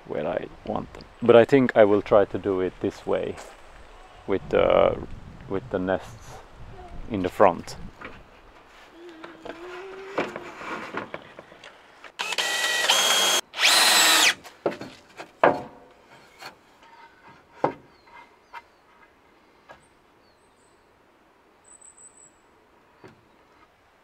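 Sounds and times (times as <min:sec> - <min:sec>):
cordless drill running: 0:12.2 - 0:14.4.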